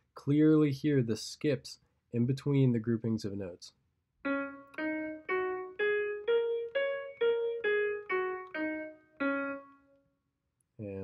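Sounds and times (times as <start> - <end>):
piano playing scale: 4.3 - 10.0.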